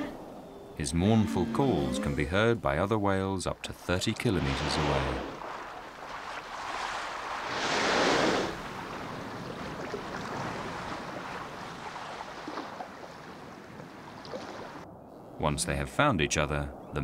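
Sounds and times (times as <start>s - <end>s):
sea water washing: 3.5s - 14.9s
whale blowing air: 7.4s - 8.7s.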